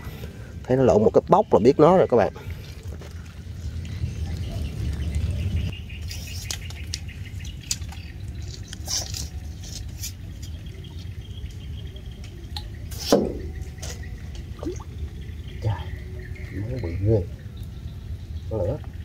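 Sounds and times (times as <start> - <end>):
steady low rumble: 0.0 - 6.0.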